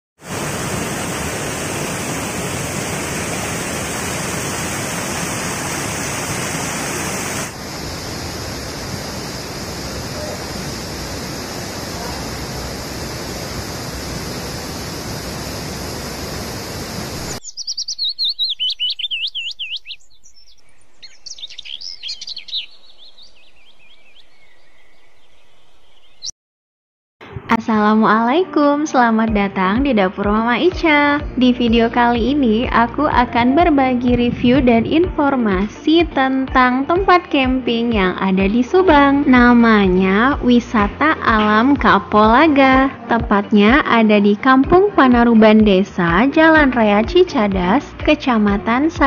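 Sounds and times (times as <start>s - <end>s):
waterfall rushing: 0.2s - 17.4s
bird warbling: 17.4s - 24.9s.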